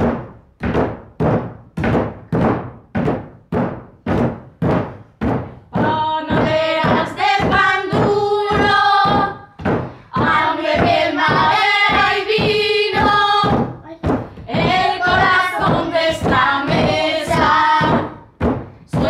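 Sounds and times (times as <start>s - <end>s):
fists thumping wooden table: 0.0s - 19.0s
women and girls singing: 5.7s - 19.0s.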